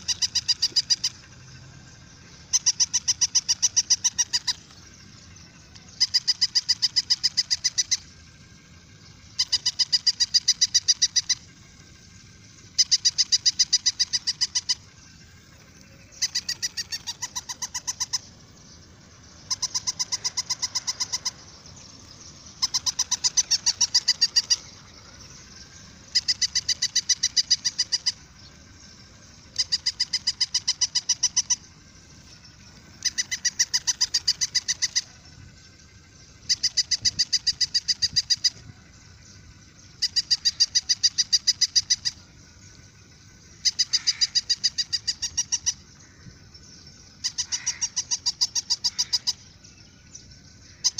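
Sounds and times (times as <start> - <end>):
toy dog electronic yaps: 2.4 - 4.7, 16.1 - 18.3, 19.4 - 21.4, 22.6 - 24.8.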